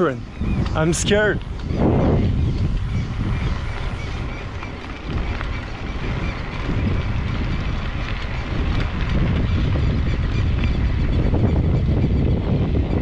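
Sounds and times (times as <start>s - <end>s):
bicycle ticks and rattles: 0.0s - 13.0s
wind buffeting microphone: 0.0s - 13.0s.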